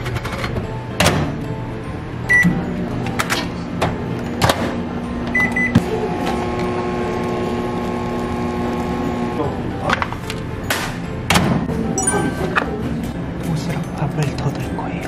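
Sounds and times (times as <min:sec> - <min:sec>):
microwave keypad beeps: 0:02.3 - 0:02.6, 0:05.3 - 0:05.8
microwave oven humming: 0:04.0 - 0:09.6.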